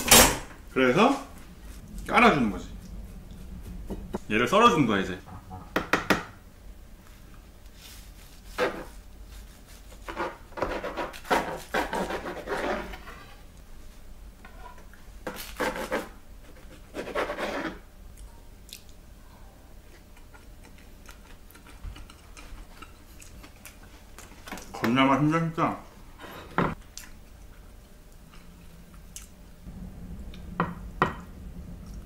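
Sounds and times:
knife sawing through bread: 8.2s - 13.4s, 15.3s - 17.8s.

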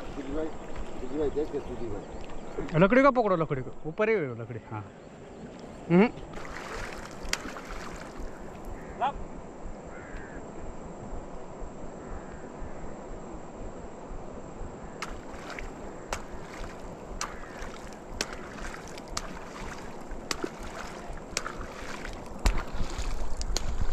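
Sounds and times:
water sloshing and splashing: 0.0s - 2.7s, 5.3s - 8.9s, 14.9s - 23.9s.

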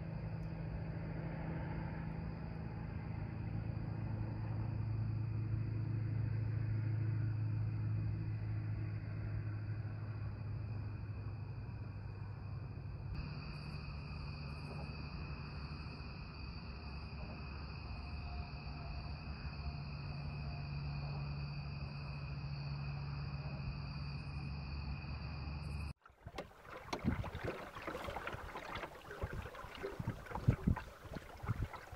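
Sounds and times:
night insects chirring: 0.0s - 25.9s, 26.6s - 31.9s
splashes and knocks: 26.0s - 31.9s.

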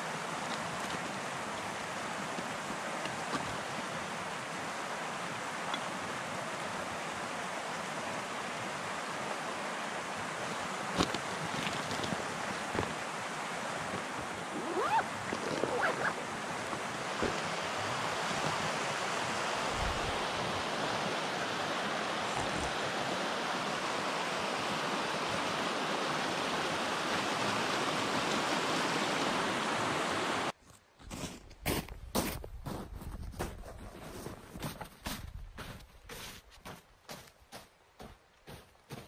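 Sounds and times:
stream rushing over stones: 0.0s - 30.6s
gear squeaking and rustling: 14.5s - 16.3s.

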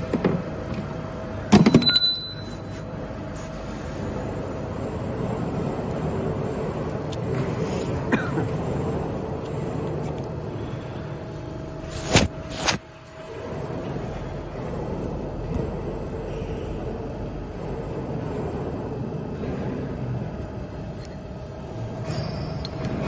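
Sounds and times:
workshop machinery hum: 0.0s - 23.0s
sharp metallic clatter: 1.5s - 2.8s
brief high ringing: 1.6s - 2.8s.

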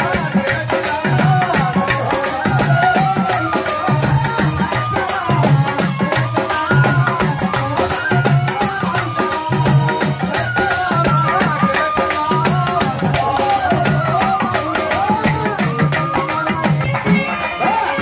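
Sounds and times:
hand drum beat: 0.0s - 18.0s
jingling percussion: 0.0s - 18.0s.

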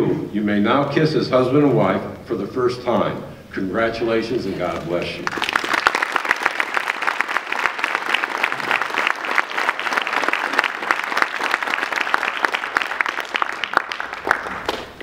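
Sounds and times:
audience applauding: 4.8s - 15.0s.

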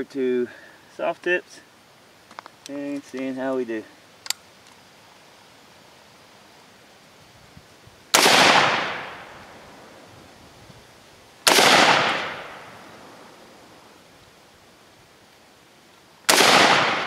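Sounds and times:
rifle shots: 8.1s - 9.4s, 11.4s - 12.8s, 16.3s - 17.0s.

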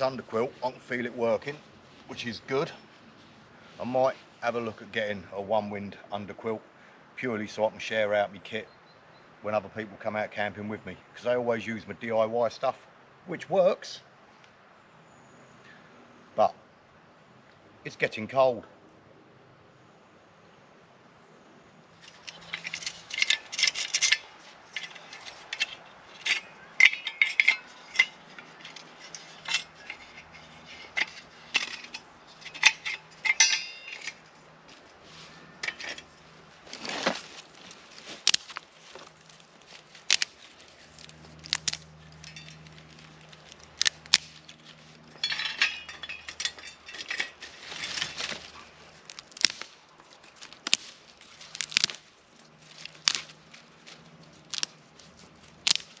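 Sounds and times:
metal camp stove clinking: 22.0s - 34.8s, 35.4s - 37.2s, 38.2s - 53.4s
twigs snapping: 22.0s - 56.0s.

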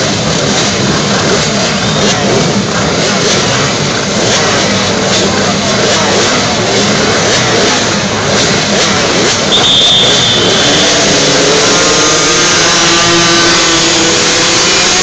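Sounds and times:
small two-stroke engines revving: 0.0s - 15.0s
brief high steady tone: 9.5s - 11.3s.

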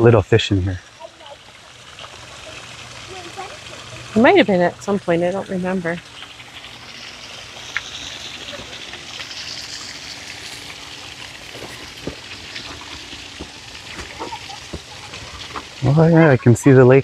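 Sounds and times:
fountain water splashing: 0.0s - 17.0s.

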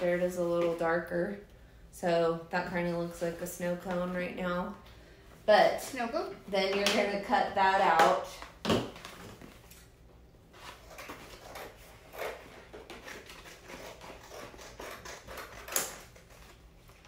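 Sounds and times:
scissors cutting cardboard: 10.6s - 16.6s.

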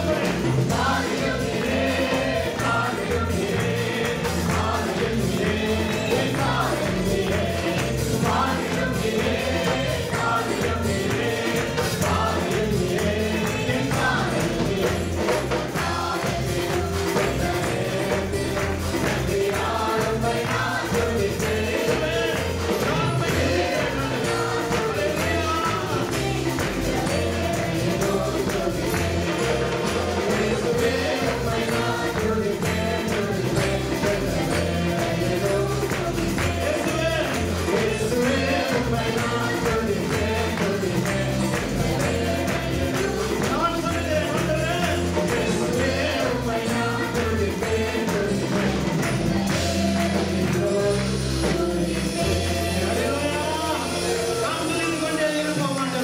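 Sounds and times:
band with keyboards and bass: 0.0s - 56.0s
man singing into microphone: 50.2s - 56.0s.

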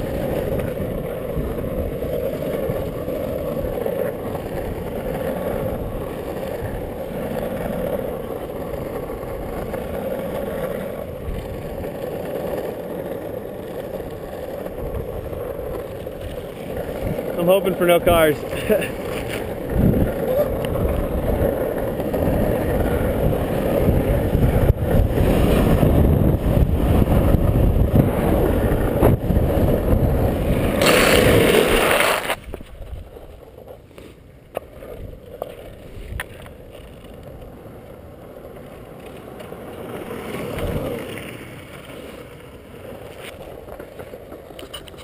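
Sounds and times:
longboard wheels rolling on asphalt: 0.0s - 45.0s.

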